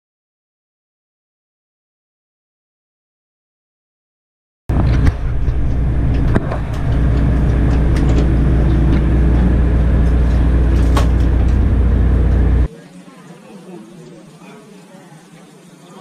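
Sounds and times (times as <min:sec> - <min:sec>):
boat engine droning: 0:04.7 - 0:12.7.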